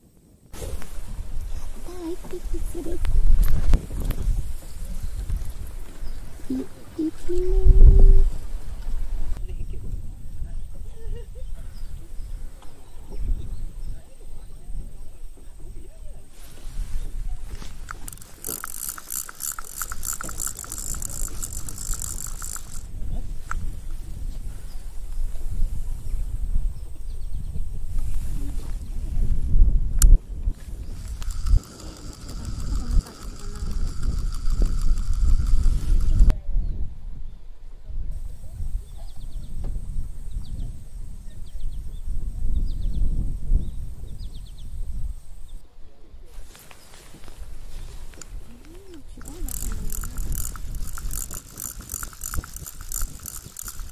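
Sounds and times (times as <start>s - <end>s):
wind rumbling on microphone: 0.0s - 53.9s
fishing reel clicking and whirring: 17.8s - 22.9s, 30.8s - 36.3s, 49.2s - 53.9s.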